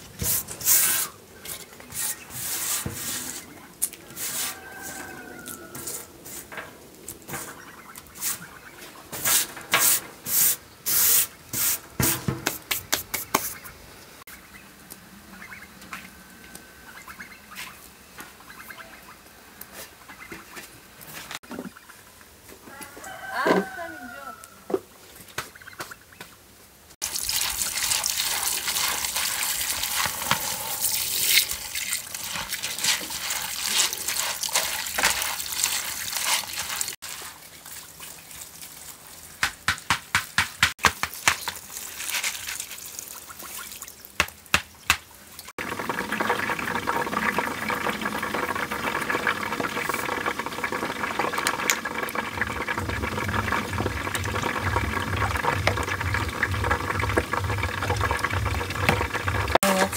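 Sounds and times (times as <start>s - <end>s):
steady hiss: 9.1s - 14.2s
hose water running into a bowl: 27.0s - 39.3s, 45.6s - 59.9s.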